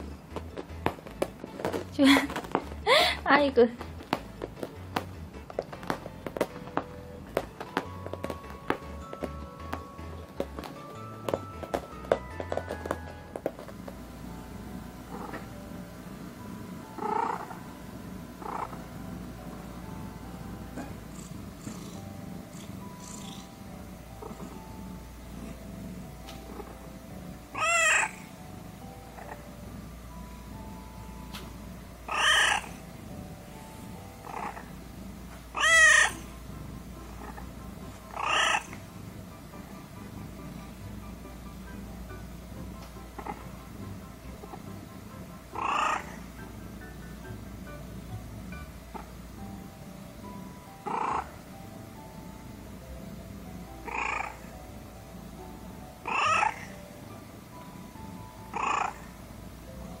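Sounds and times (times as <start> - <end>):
cat purring: 0.0 - 60.0
soft background music: 0.0 - 60.0
cat meowing: 27.5 - 28.3, 32.1 - 32.8, 35.5 - 36.3, 38.1 - 38.8, 45.6 - 46.2, 56.0 - 56.7.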